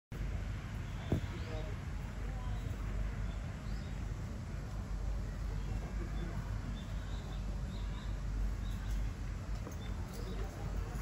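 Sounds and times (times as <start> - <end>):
steady low rumble: 0.1 - 11.0
faint bird chirps: 5.2 - 9.1.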